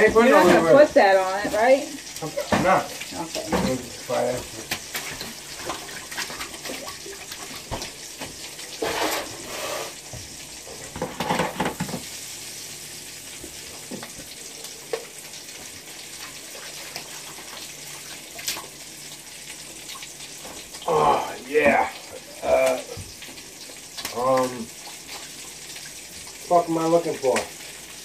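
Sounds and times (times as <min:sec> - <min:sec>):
sausages sizzling in a frying pan: 0:00.0 - 0:28.0
dishes clattering: 0:10.8 - 0:12.0.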